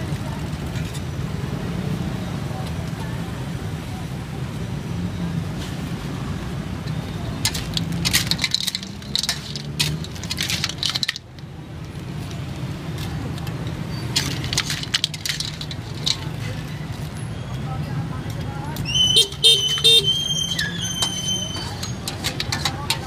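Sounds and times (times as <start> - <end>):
metal spatula scraping wok: 7.4 - 11.2, 20.8 - 23.0
shells clattering: 7.4 - 11.5, 14.1 - 16.6.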